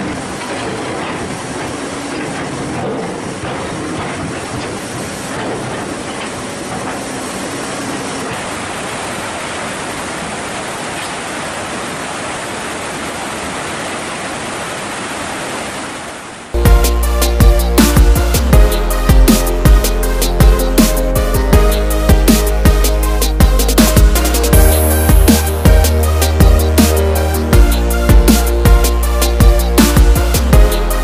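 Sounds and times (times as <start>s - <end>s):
excavators working: 0.0s - 9.8s
river rushing: 0.0s - 31.0s
loud music: 16.6s - 31.0s.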